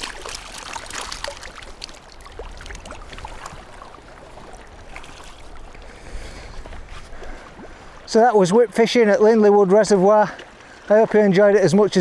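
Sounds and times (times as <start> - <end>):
water dripping off net: 0.0 - 3.8
fish splashing into water: 0.0 - 5.7
low wind rumble: 1.6 - 8.2.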